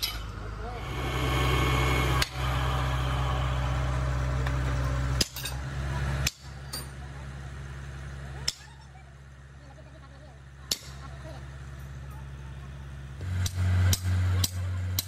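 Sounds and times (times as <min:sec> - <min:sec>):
low hum: 0:00.5 - 0:06.3.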